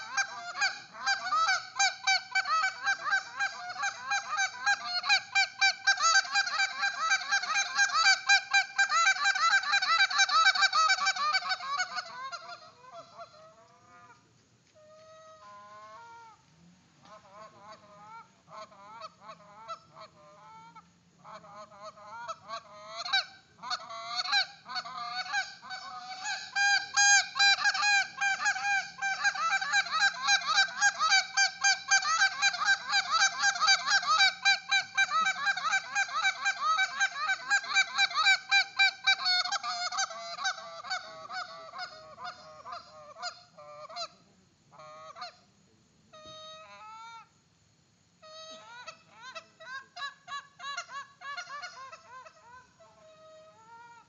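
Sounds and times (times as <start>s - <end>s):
goose call honks and clucks: 0.0s - 14.2s, 14.8s - 16.4s, 17.0s - 45.5s, 48.2s - 54.0s.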